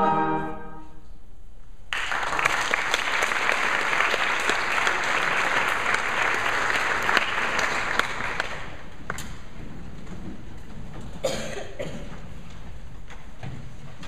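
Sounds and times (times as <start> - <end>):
audience applauding: 1.9 - 9.2.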